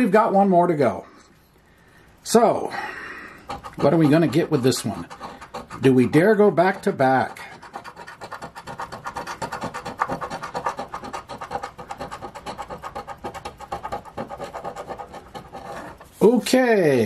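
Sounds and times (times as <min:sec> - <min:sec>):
coin scraping scratch-off ticket: 0:03.4 - 0:16.5.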